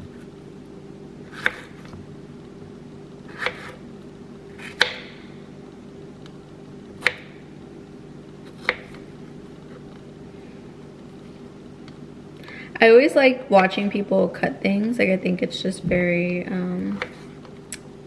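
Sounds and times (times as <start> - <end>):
steady low hum: 0.0 - 18.0
knife slicing strawberries: 1.2 - 2.0, 3.3 - 3.8, 4.5 - 5.2, 8.4 - 9.9.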